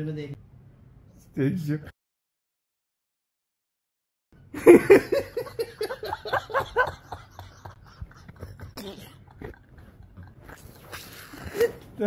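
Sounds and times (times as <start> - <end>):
man laughing hard: 4.6 - 11.8.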